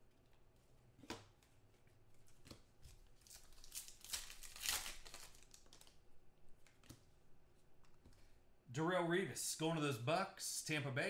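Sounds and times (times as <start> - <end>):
foil wrapper tearing and crinkling: 3.1 - 6.0.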